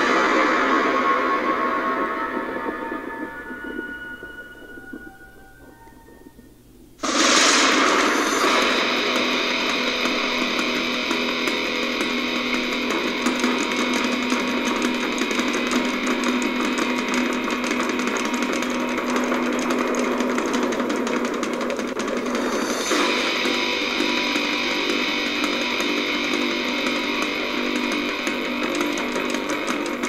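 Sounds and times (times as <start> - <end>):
fast repeated guitar music: 7.0 - 30.0.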